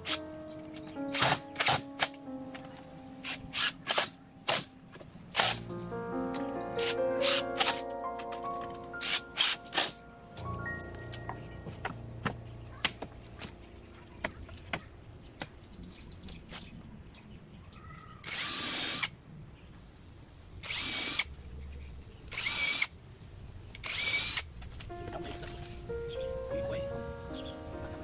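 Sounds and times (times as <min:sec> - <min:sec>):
cordless drill into wood: 0:18.2 - 0:19.1, 0:20.6 - 0:21.3, 0:22.3 - 0:22.9, 0:23.8 - 0:24.4.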